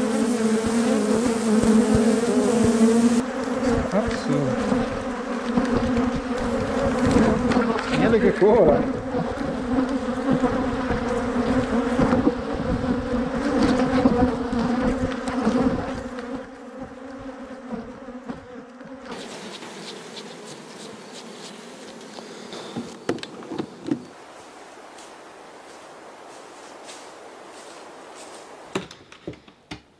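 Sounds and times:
bees buzzing: 0.0s - 28.8s
outdoor ambience: 0.0s - 29.9s.

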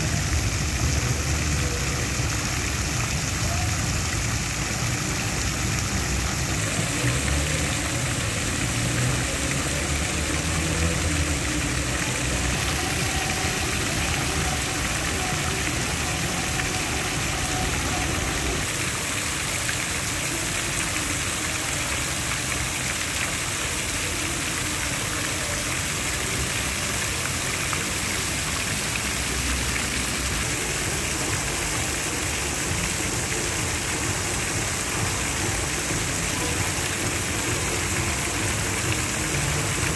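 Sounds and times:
road traffic passing: 4.1s - 18.7s.

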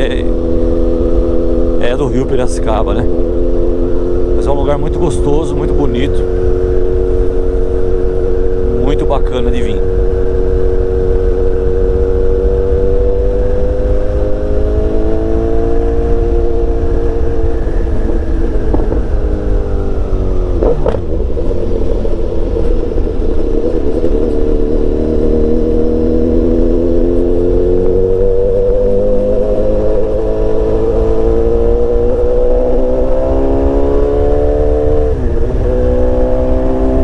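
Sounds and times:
motorcycle engine running: 0.0s - 37.0s
wind rumble on microphone: 0.0s - 37.0s.

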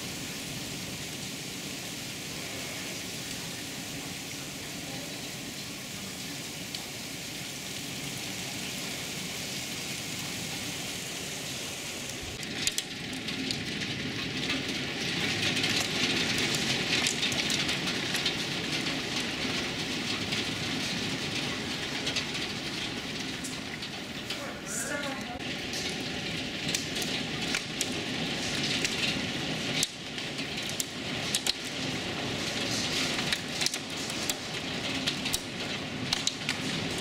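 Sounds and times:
heavy rain: 0.0s - 37.0s
hail clattering on hard surfaces: 12.1s - 37.0s.

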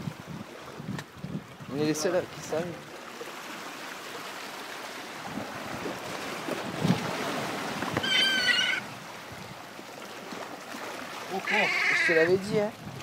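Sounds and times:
sea water washing on rocks: 0.0s - 13.0s
gull crying: 8.0s - 8.9s, 11.4s - 12.4s.

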